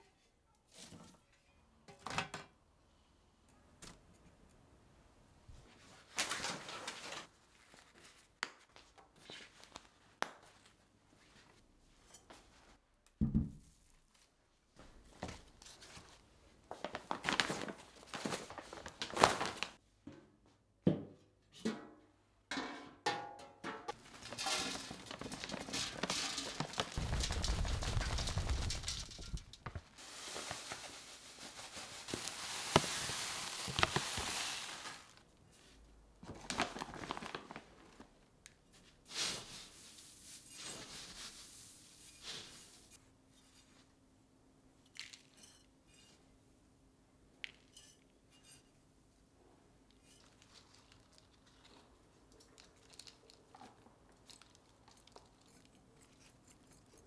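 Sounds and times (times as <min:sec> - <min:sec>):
wrapping rustling: 0:15.1 - 0:19.8, 0:24.0 - 0:35.3, 0:36.3 - 0:38.2.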